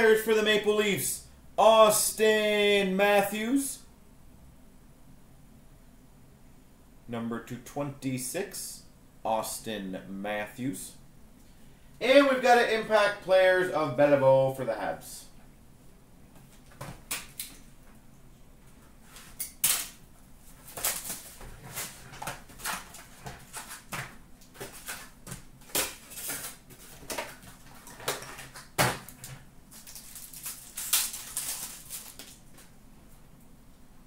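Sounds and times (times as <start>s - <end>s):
cardboard and wrapper rustling: 20.5s - 32.7s.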